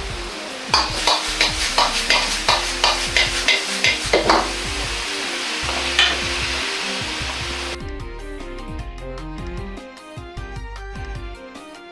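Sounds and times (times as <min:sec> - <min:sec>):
food sizzling: 0:00.0 - 0:07.8
quiet background music: 0:00.0 - 0:11.9
ladle scraping a wok: 0:00.8 - 0:07.8.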